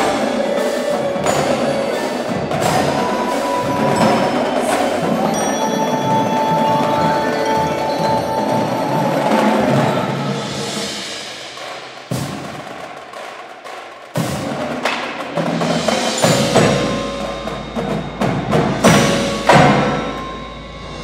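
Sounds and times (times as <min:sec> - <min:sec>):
ringing mallet keyboard notes: 0:00.0 - 0:09.9, 0:16.1 - 0:21.0
drumline accents: 0:00.0 - 0:21.0.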